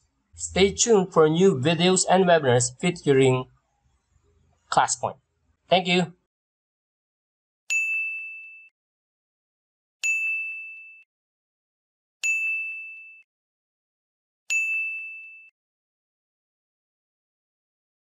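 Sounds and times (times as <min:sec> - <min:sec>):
bright ding chime with click: 0:07.7 - 0:08.7, 0:10.0 - 0:11.0, 0:12.2 - 0:13.2, 0:14.5 - 0:15.5.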